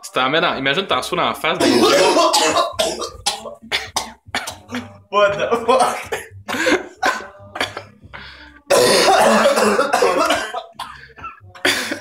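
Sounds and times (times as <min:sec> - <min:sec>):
man clearing his throat: 0:01.6 - 0:04.6, 0:08.7 - 0:11.0
man coughing: 0:01.6 - 0:04.9, 0:05.8 - 0:07.9, 0:08.7 - 0:11.0.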